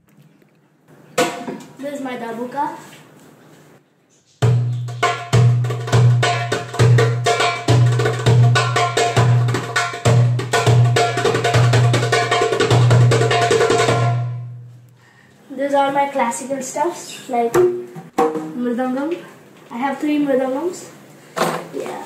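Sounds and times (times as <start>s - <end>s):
hand drum fast rhythm: 4.4s - 14.4s.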